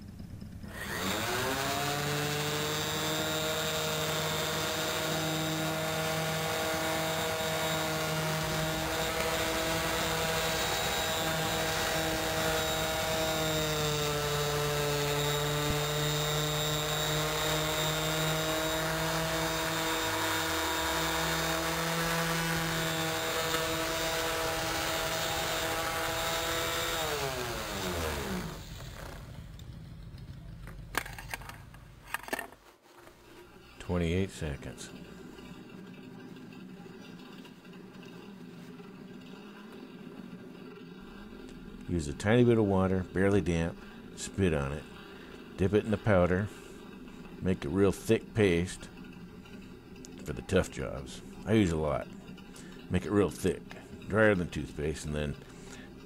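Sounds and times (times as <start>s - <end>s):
orbital sander running: 0.6s - 29.7s.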